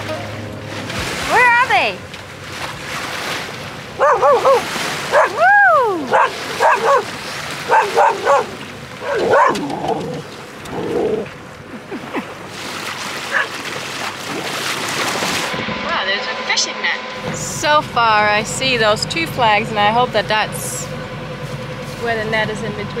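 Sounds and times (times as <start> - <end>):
dog whining and yelping: 4.0 - 7.1, 7.7 - 10.2.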